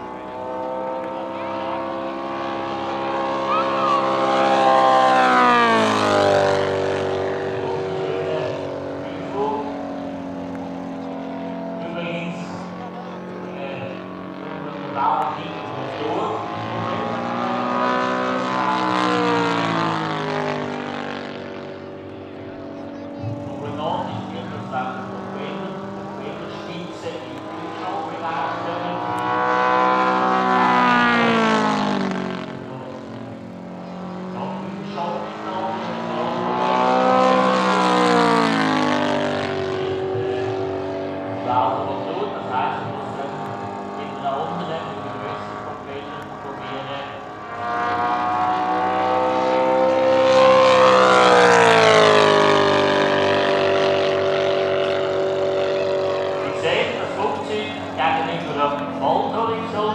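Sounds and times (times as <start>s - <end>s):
model airplane engine flying past: 0.0s - 59.9s.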